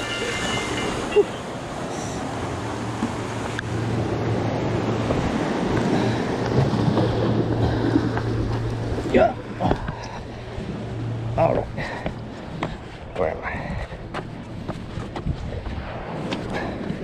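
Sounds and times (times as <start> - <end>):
low hum: 0.0 - 17.0
wind on microphone: 12.2 - 17.0.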